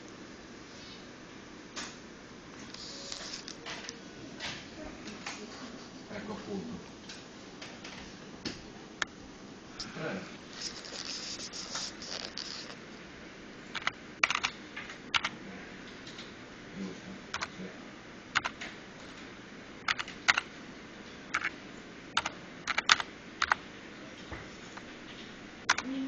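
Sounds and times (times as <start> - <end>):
computer keyboard key clicks: 13.8 - 14.6, 18.4 - 19.2, 22.2 - 23.6.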